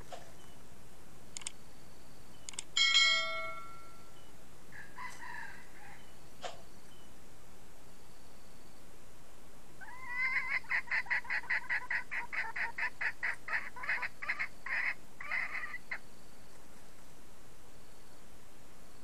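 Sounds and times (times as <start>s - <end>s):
hen cackling: 9.8s - 16.0s.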